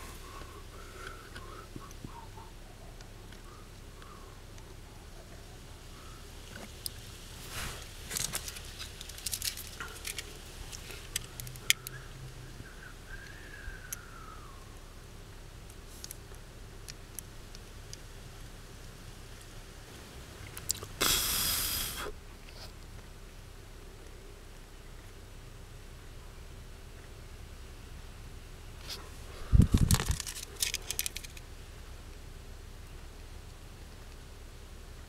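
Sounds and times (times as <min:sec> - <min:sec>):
loud burst of hiss: 0:21.0 - 0:22.2.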